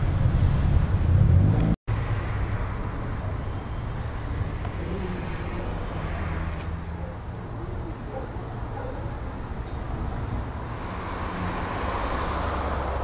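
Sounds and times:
engine revving: 0.0s - 1.8s.

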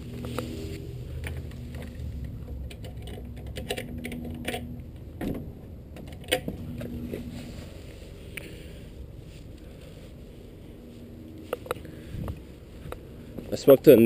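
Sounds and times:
metal latch clicking and rattling: 2.7s - 5.4s.

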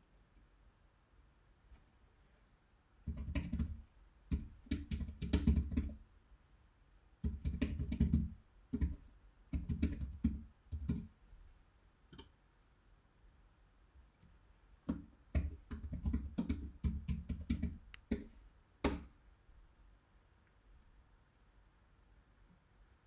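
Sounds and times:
computer keyboard typing: 3.0s - 6.0s, 7.2s - 11.1s, 14.9s - 19.1s.

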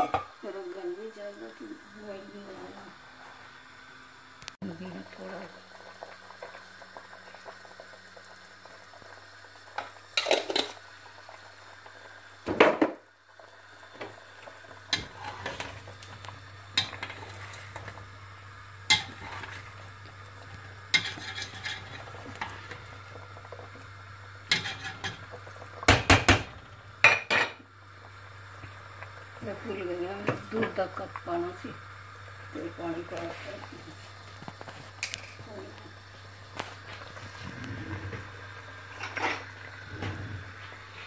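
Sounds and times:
low steady hum: 13.0s - 41.0s
spoons scraping metal pot: 20.9s - 22.7s, 24.5s - 25.2s.

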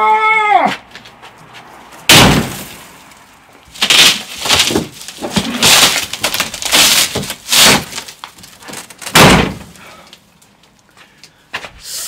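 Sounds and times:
glass crashing into plastic bin: 2.1s - 2.8s, 3.8s - 9.8s
breaking glass crunching: 2.1s - 2.9s, 3.7s - 9.8s.

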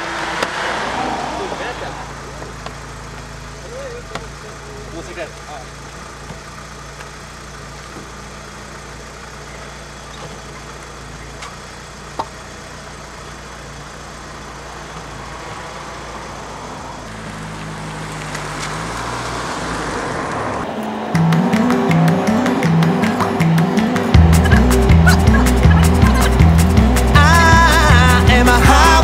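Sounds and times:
car engine idling and revving: 0.0s - 29.0s
loud music: 20.9s - 29.0s.

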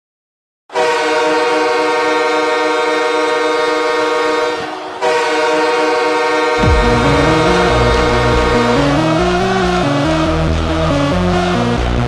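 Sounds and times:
arena goal horn: 0.8s - 9.2s.

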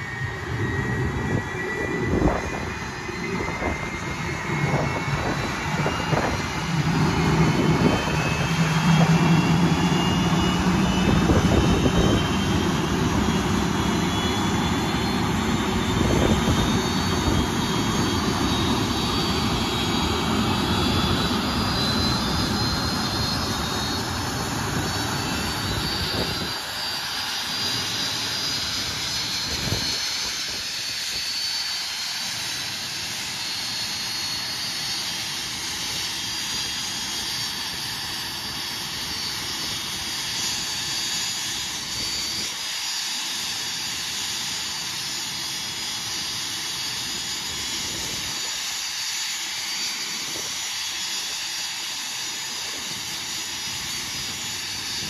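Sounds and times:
jet engine rushing with whine: 0.0s - 55.0s
deep rumble: 0.2s - 17.6s.

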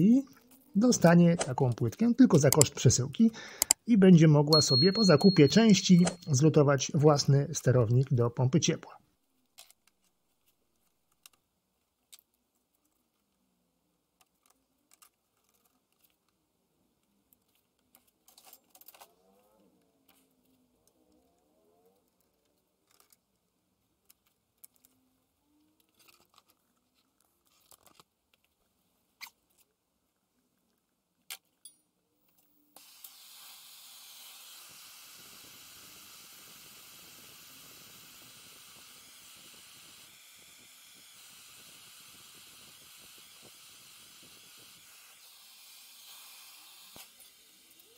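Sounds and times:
gas torch hissing: 32.8s - 47.8s.

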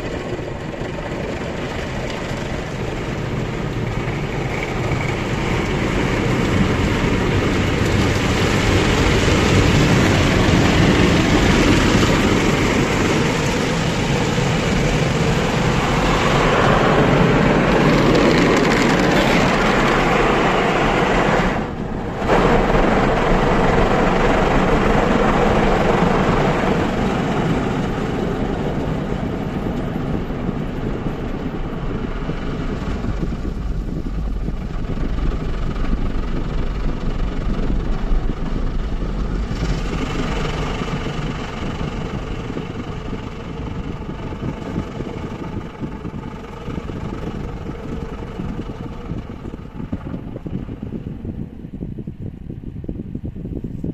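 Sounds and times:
car engine idling: 0.0s - 52.5s
car cabin road noise: 0.0s - 52.9s
deep rumble: 0.0s - 53.9s.

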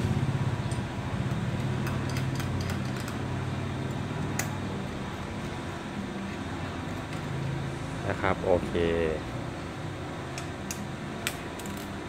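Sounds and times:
steady low hum: 0.0s - 12.0s
hex key clicking on metal bolts: 1.6s - 3.2s.

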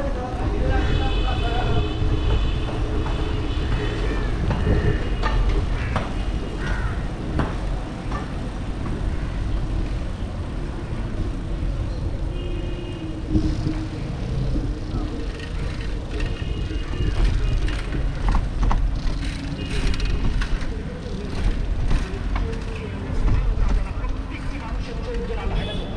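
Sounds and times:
wind on microphone: 0.0s - 10.0s, 13.0s - 19.2s
bicycle tyres rumbling on wet road: 0.0s - 25.9s
street traffic: 0.0s - 25.9s.

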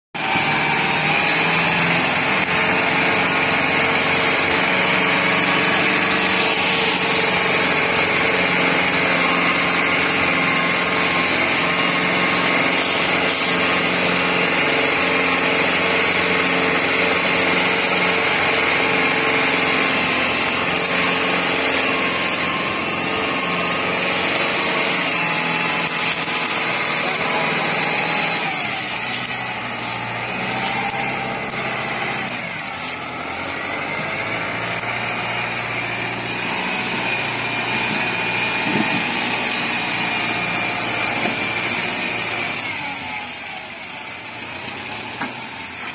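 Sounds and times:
tractor diesel engine running: 0.1s - 45.9s.

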